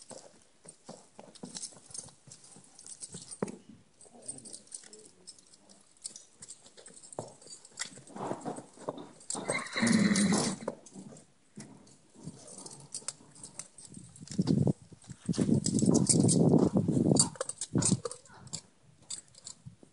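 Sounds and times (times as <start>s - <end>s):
hooves on rubber matting: 0.0s - 19.9s
horse whinnying: 9.3s - 10.7s.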